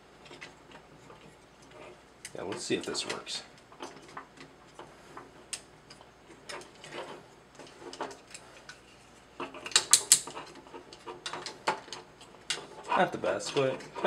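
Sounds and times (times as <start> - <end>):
plastic figure joints clicking: 9.4 - 12.6.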